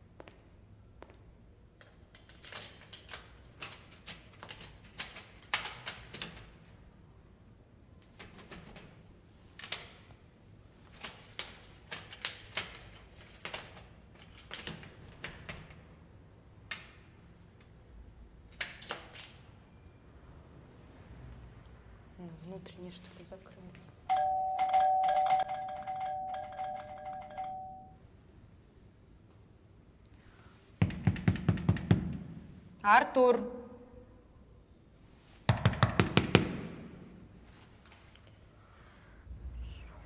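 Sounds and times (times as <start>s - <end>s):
key rattling in door lock: 1.8s - 6.6s, 10.8s - 15.8s, 24.1s - 27.8s.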